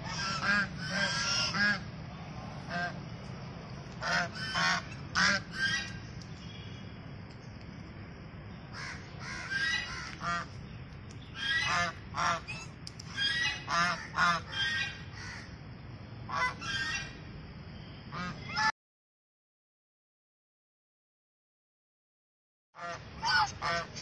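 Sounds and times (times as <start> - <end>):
geese honking: 0.0 - 1.9, 2.6 - 3.0, 4.0 - 6.0, 8.8 - 10.6, 11.4 - 15.5, 16.3 - 17.1, 22.8 - 24.0.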